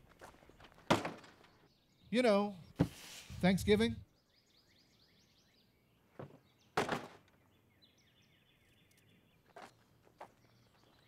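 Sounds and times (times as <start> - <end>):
small birds chirping: 0.0 - 11.0
plastic bins knocking into truck bed: 0.9 - 1.4, 6.8 - 7.2.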